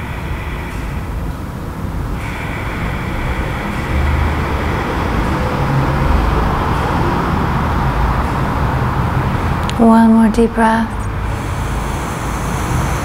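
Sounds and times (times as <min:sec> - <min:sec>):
hiss: 0:00.0 - 0:07.9, 0:11.1 - 0:13.0.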